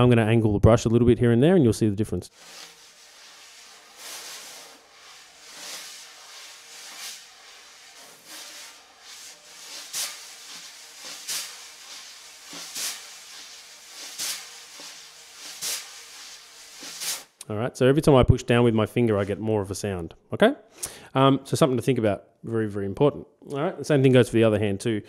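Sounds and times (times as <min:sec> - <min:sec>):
wire brush swishing on snare drum: 0:02.3 - 0:17.4.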